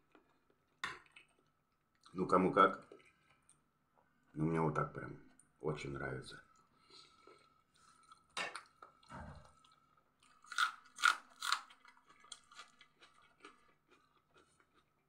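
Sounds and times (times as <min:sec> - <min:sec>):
person chewing: 0:07.0 - 0:15.0
crunching raw onion: 0:10.3 - 0:14.9.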